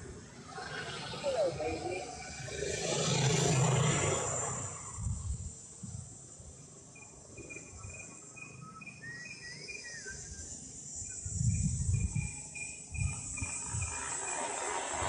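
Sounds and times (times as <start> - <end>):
high insect drone: 0.0 - 15.0
wavering whistled call: 7.5 - 14.7.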